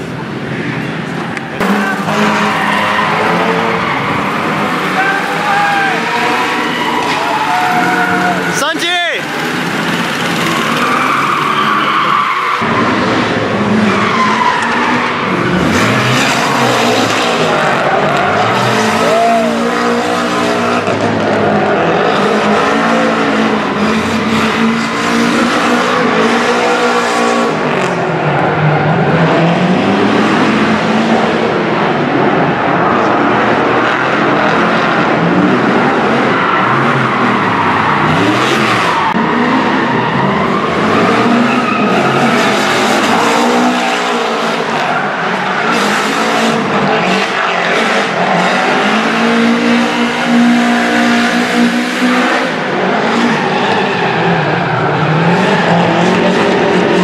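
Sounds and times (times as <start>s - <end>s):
car engine revving: 0.0s - 57.0s
tyre squeal and skidding: 1.6s - 8.6s, 9.2s - 20.8s, 35.9s - 56.7s.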